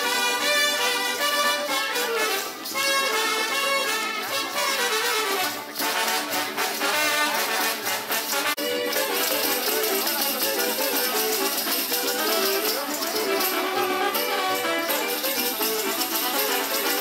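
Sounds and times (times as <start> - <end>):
brass band music: 0.0 - 17.0
rattle shaking: 5.2 - 17.0.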